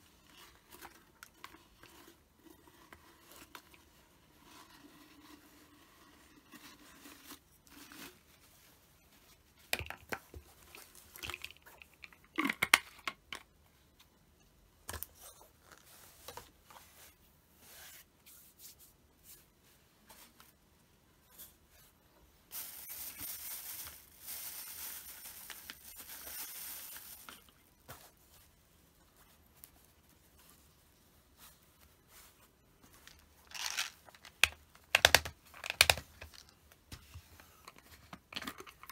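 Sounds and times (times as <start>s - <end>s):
plastic items clicking and knocking: 9.6s - 13.5s, 33.1s - 36.6s, 37.6s - 38.9s.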